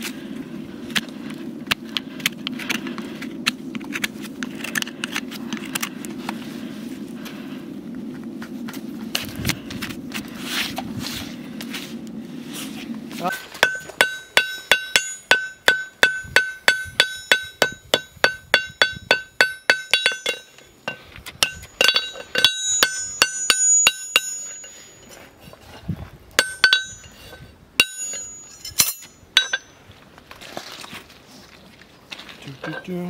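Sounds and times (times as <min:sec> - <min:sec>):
hammer striking horseshoe on anvil: 0:13.3 - 0:25.0, 0:26.4 - 0:27.2, 0:27.8 - 0:29.7.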